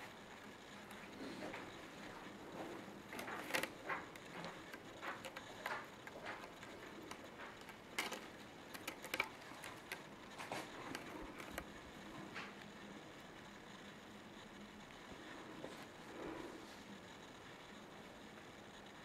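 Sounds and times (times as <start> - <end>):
kitten moving with light ticks: 0.8 - 12.6.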